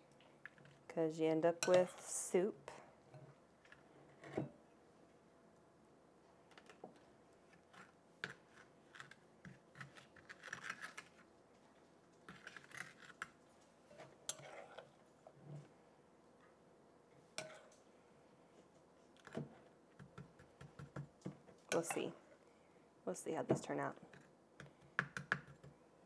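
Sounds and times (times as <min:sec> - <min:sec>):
metal spoon scraping glass bowl: 0:13.9 - 0:14.9.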